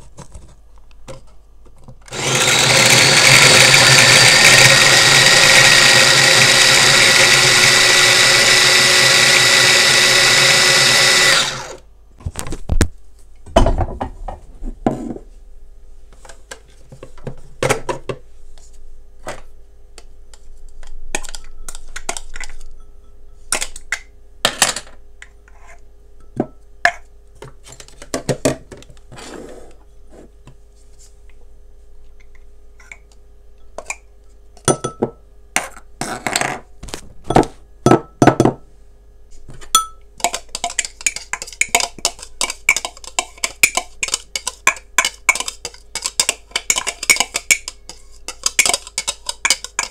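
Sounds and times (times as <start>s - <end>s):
kitchen appliance motor running: 2.1s - 11.8s
utensils clicking and knocking: 40.2s - 49.9s.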